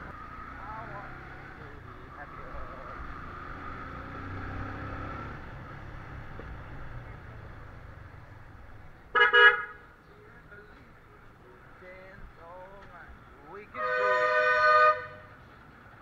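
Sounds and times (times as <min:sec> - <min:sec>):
motorcycle engine at low speed: 0:00.0 - 0:10.1
road noise: 0:00.0 - 0:16.0
vehicle horn toots: 0:09.1 - 0:09.8, 0:13.8 - 0:15.3.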